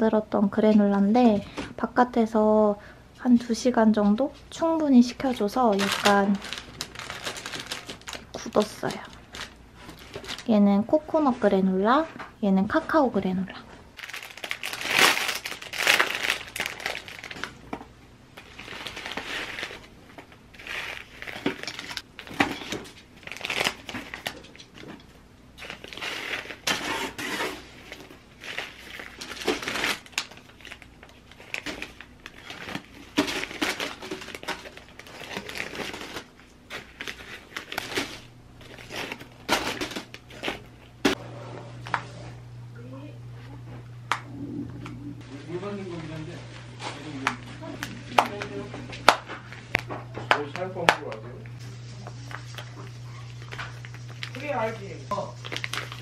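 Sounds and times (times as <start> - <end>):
plastic bags crinkling: 5.0 - 10.6, 14.0 - 41.1, 52.0 - 56.0
granola clusters crunching and rattling: 5.7 - 10.5, 14.0 - 17.7, 18.4 - 24.4, 27.8 - 40.7, 55.4 - 56.0.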